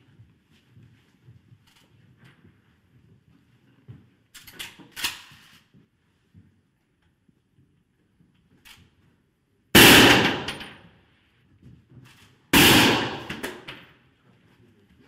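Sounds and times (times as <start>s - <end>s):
rifle shots: 9.8s - 10.8s, 12.5s - 13.7s.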